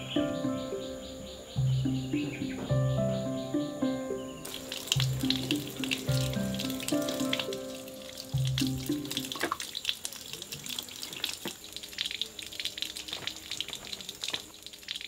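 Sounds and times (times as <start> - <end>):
soft background music: 0.0 - 9.6
water trickling and splashing: 1.3 - 15.0.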